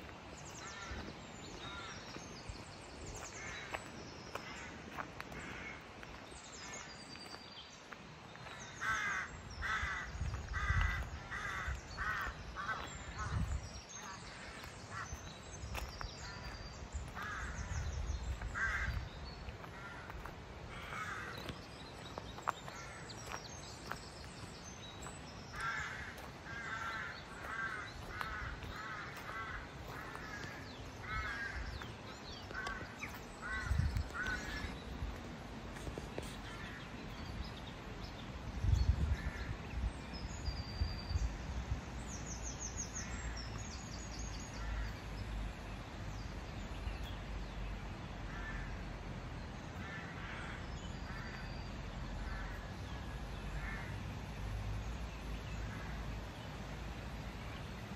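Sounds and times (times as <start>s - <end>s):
crows cawing: 0.6s - 2.2s, 3.3s - 6.1s, 8.4s - 13.4s, 14.0s - 17.8s, 18.5s - 21.5s, 22.7s - 23.4s, 25.5s - 31.9s, 32.5s - 34.8s, 48.3s - 48.8s, 49.8s - 51.4s, 52.2s - 52.7s, 53.6s - 54.0s.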